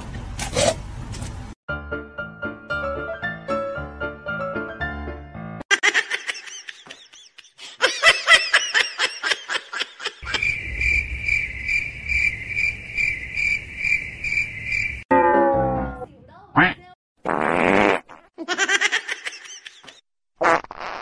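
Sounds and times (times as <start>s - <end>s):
high-pitched insect chirps and trill: 10.2s - 15.0s.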